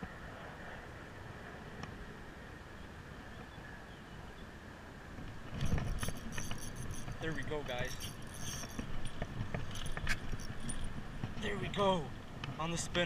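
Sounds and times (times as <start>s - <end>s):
fishing reel clicking: 5.6s - 10.9s.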